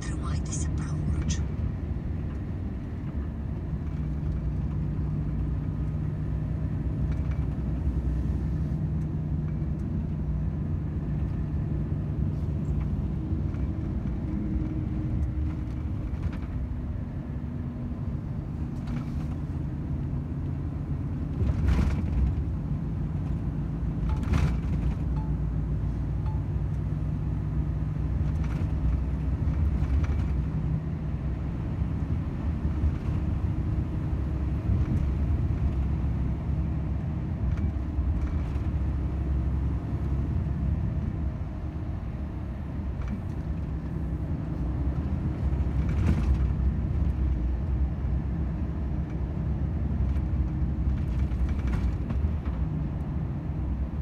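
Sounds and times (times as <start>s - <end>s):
truck diesel engine rumbling: 0.0s - 54.0s.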